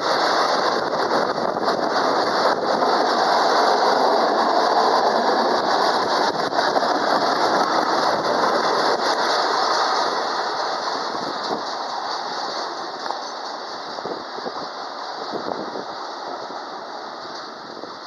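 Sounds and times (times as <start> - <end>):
train wagons rolling past: 0.0 - 18.0.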